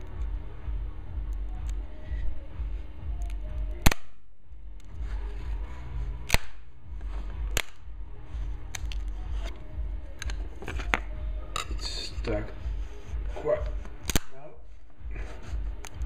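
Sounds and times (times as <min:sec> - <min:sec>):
low rumble: 0:00.0 - 0:16.0
plastic parts snapping loose: 0:13.9 - 0:14.3.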